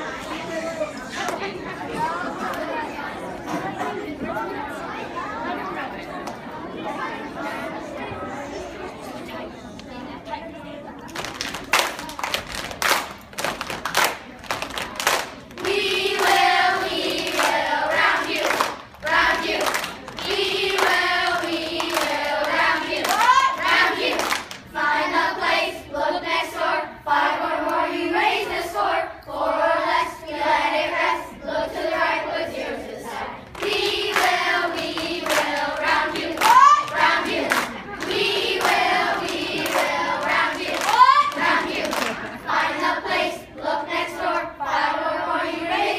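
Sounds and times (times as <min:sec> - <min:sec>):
hand claps: 0:11.1 - 0:16.4, 0:33.6 - 0:35.6
children singing in chorus: 0:15.6 - 0:45.9.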